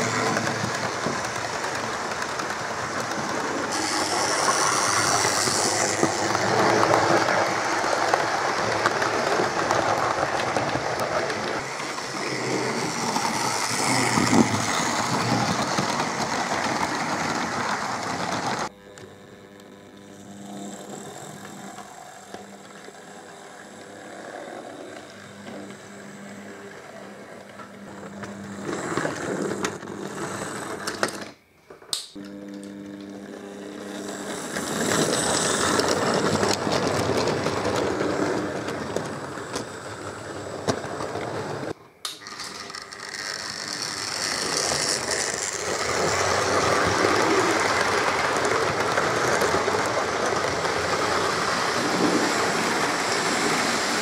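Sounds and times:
model train rattling on track: 0:00.0 - 0:18.7, 0:34.0 - 0:54.0
small electric motor humming: 0:00.0 - 0:31.0, 0:32.2 - 0:54.0
click: 0:31.9 - 0:32.8, 0:42.0 - 0:42.2.

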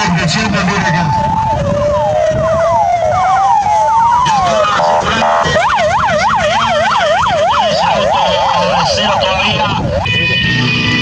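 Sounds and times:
electronic vehicle siren: 0:00.0 - 0:11.0
buzzing horn tone: 0:10.0 - 0:11.0.

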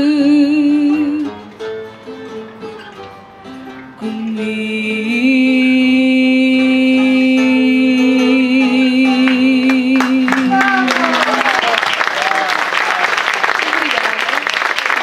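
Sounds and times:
woman singing with vibrato: 0:00.0 - 0:01.4, 0:03.9 - 0:11.4
guitars playing: 0:00.0 - 0:11.7.

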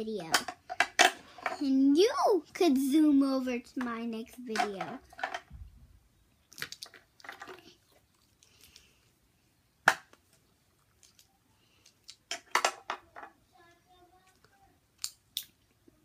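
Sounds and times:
plastic toys clicking and knocking: 0:00.0 - 0:01.8, 0:03.7 - 0:05.6, 0:06.5 - 0:07.8, 0:11.0 - 0:13.4.

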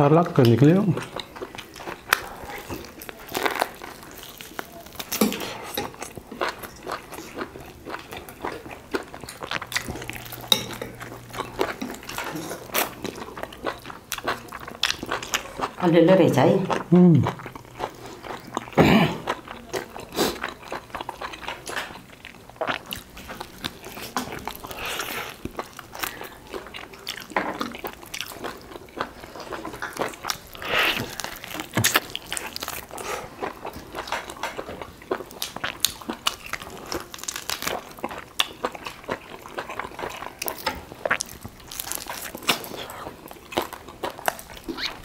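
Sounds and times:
crunching and chewing: 0:00.4 - 0:15.8, 0:16.7 - 0:45.0.

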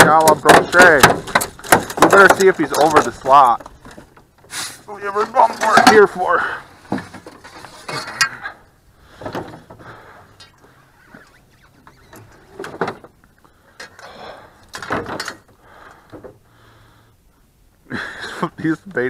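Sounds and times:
knocks and scrapes on boat floor: 0:06.8 - 0:08.2.

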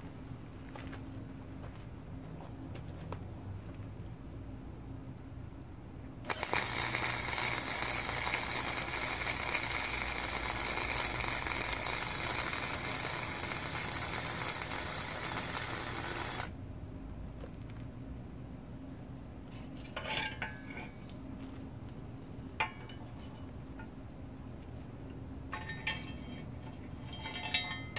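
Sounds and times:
welder arc hissing: 0:06.3 - 0:16.5.

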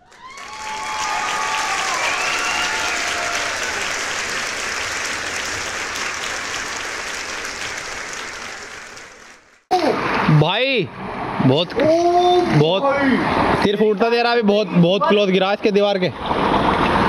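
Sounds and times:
pool water splashing: 0:00.0 - 0:10.3.

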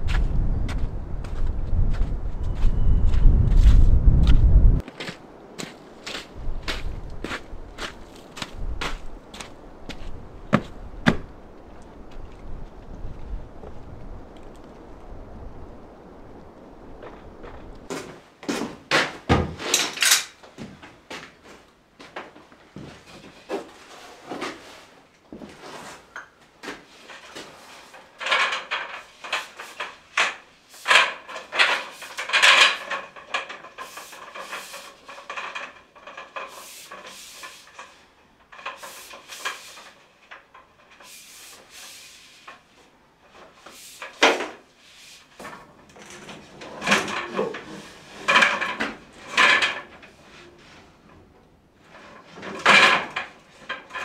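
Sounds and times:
footsteps: 0:00.0 - 0:14.8, 0:16.9 - 0:19.8, 0:20.4 - 0:28.0
plastic pipe rustling and scraping: 0:17.2 - 0:54.0.

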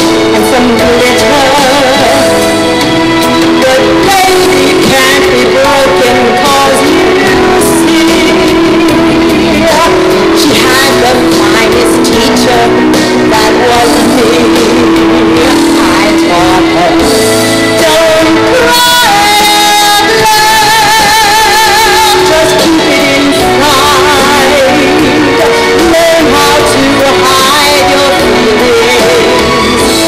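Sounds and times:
instrumental accompaniment: 0:00.0 - 0:30.0
woman singing with vibrato: 0:00.0 - 0:30.0.

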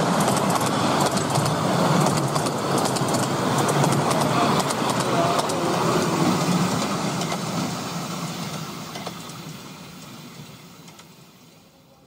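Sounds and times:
miniature train wheels rumbling: 0:00.0 - 0:11.2.

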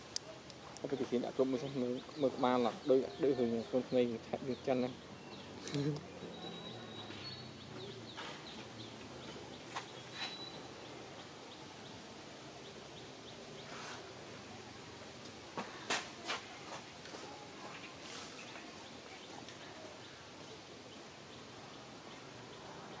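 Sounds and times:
faint high chirps: 0:01.1 - 0:08.6, 0:09.8 - 0:11.6.

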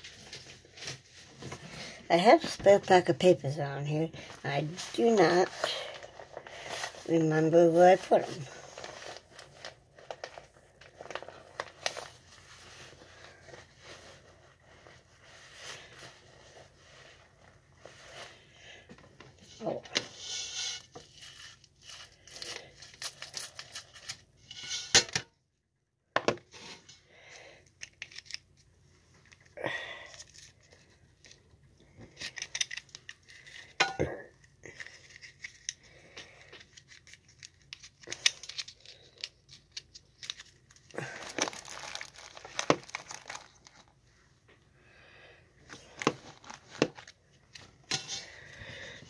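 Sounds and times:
plastic wrapper crinkling and tearing: 0:08.0 - 0:14.8, 0:20.8 - 0:24.6, 0:27.7 - 0:31.5, 0:32.1 - 0:44.1, 0:45.7 - 0:48.5.

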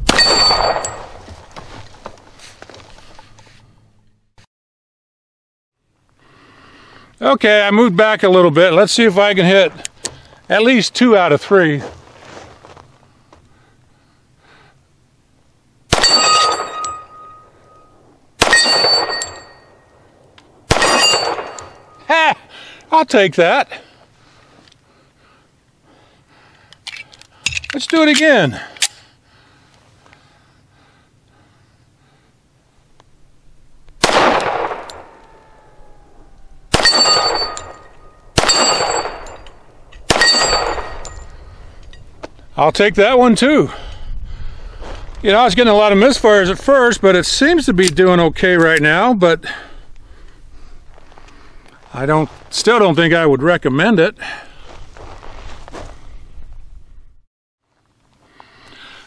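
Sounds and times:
pistol shots: 0:00.0 - 0:01.2, 0:15.9 - 0:17.4, 0:18.4 - 0:19.6, 0:20.6 - 0:22.0, 0:34.0 - 0:35.4, 0:36.7 - 0:39.4, 0:40.0 - 0:41.2
steel plate target ringing: 0:00.0 - 0:01.2, 0:16.0 - 0:19.9, 0:20.7 - 0:22.1, 0:36.7 - 0:41.4.

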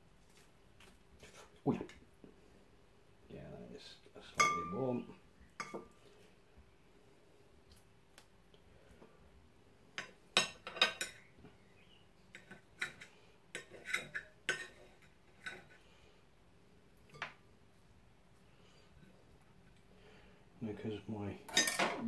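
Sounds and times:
knife tapping and scraping plate: 0:05.6 - 0:06.0, 0:12.3 - 0:15.8.

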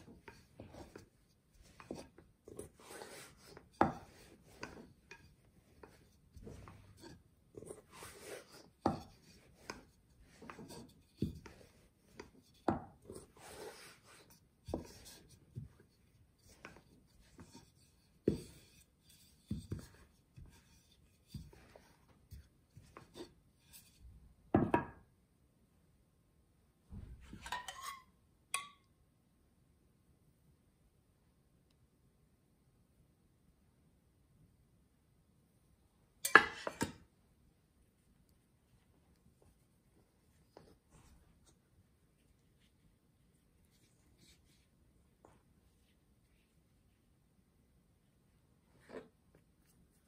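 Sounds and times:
rolling pin on wooden board: 0:00.0 - 0:24.0
metal bowl and spoon clinking: 0:27.4 - 0:28.8, 0:36.2 - 0:37.0.

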